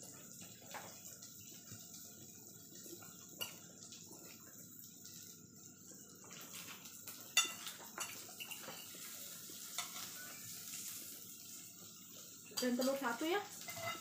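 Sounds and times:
food sizzling on grill: 0.0 - 14.0
forks and tongs clinking on plates: 3.4 - 3.7, 6.4 - 11.0, 12.4 - 14.0.

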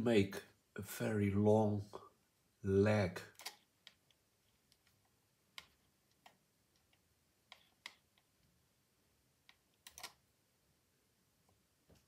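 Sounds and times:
computer mouse clicks: 3.3 - 8.4, 9.4 - 10.2.

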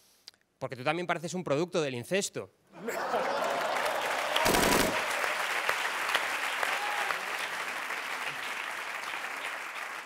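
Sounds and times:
studio audience applauding: 2.8 - 10.0.

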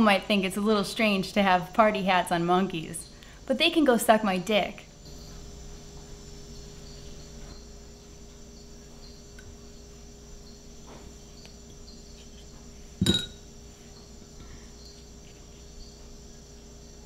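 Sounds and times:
insect chorus chirring: 2.0 - 17.0
sharp clink: 13.0 - 13.4.

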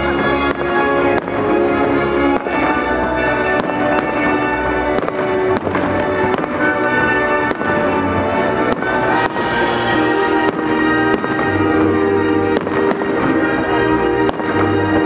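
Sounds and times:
loud music with held notes: 0.0 - 15.0
fireworks bangs: 3.5 - 15.0.

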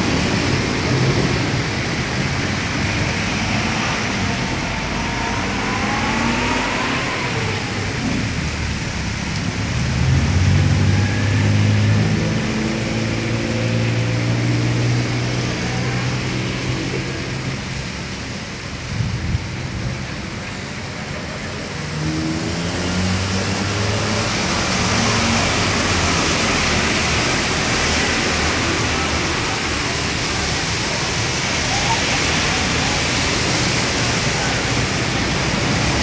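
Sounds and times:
vehicle engines passing: 0.0 - 36.0
engine revving pulling away: 3.2 - 8.4, 21.8 - 30.8.

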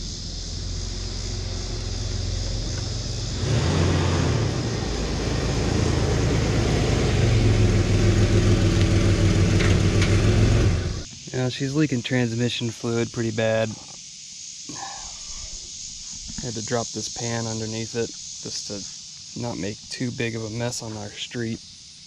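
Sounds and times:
truck engine rumbling: 0.0 - 11.9.

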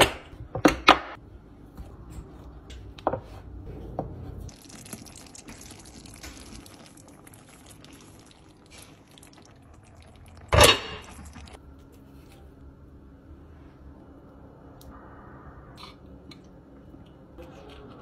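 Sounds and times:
food bubbling and hissing in pan: 4.5 - 11.6.

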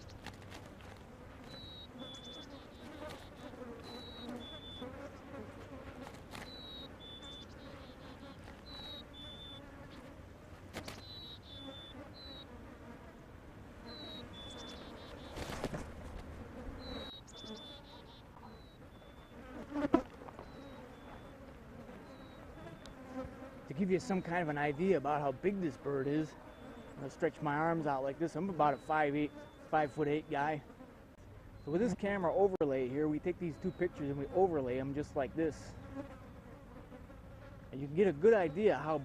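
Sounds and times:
footsteps rustling through grass: 0.0 - 4.0
flies buzzing: 0.0 - 39.0.

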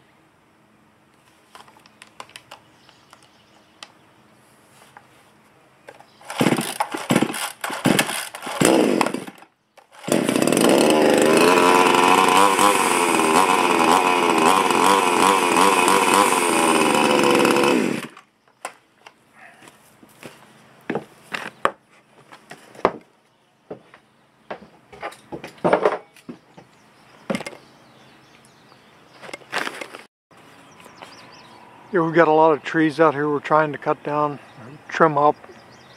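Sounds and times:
chainsaw starter cord yanks: 5.9 - 18.2
chainsaw running and revving: 6.2 - 18.2.

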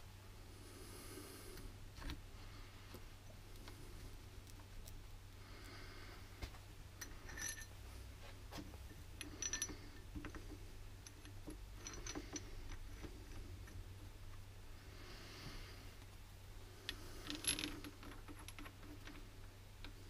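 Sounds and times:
low steady hum: 0.0 - 20.0
metal bolts clicking and clinking: 7.0 - 7.7, 9.2 - 13.8, 17.2 - 19.2.

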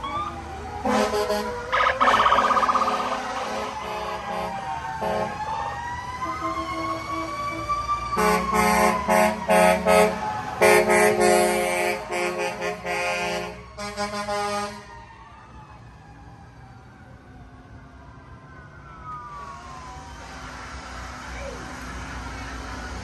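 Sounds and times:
siren rising wail: 0.0 - 10.9, 14.7 - 20.8
truck air horn blasts: 0.9 - 1.5, 2.7 - 5.4, 8.2 - 14.9.

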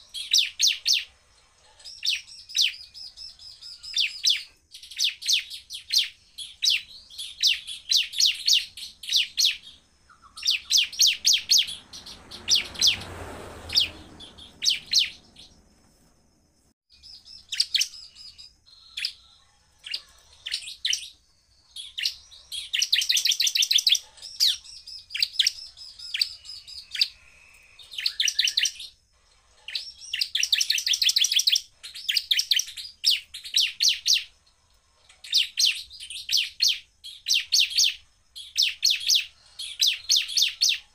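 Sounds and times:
bird singing sharp high notes: 6.8 - 15.6
brief rushing noise: 11.2 - 16.5.

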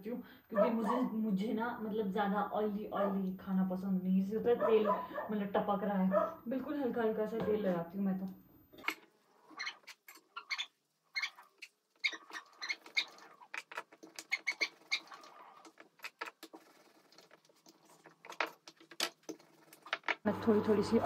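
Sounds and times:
oil sizzling and crackling: 9.2 - 20.0.

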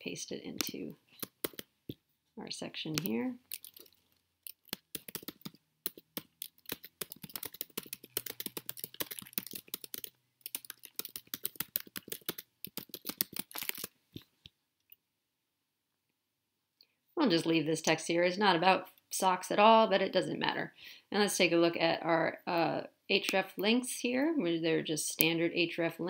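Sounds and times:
typing on computer keyboard: 1.2 - 1.7, 3.0 - 13.9.

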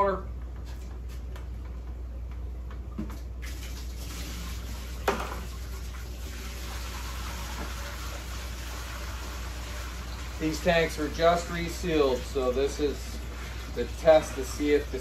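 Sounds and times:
steady low hum: 0.0 - 15.0
water pouring and splashing into tank: 3.0 - 15.0.

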